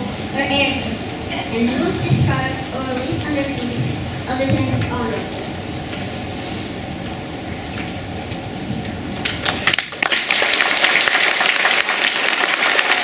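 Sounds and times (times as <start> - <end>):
low room hum: 0.0 - 13.0
children applauding: 9.4 - 13.0.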